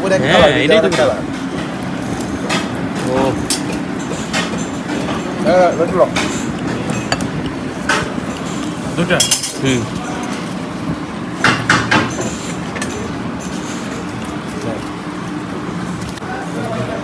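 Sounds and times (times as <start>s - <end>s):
background chatter: 0.0s - 17.0s
dishes and cutlery clinking: 2.4s - 10.5s.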